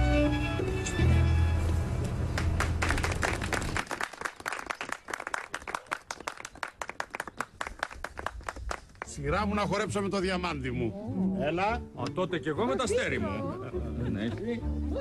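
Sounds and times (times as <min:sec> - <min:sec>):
string music: 0:00.0 - 0:02.8, 0:09.4 - 0:15.0
people clapping: 0:02.3 - 0:09.3.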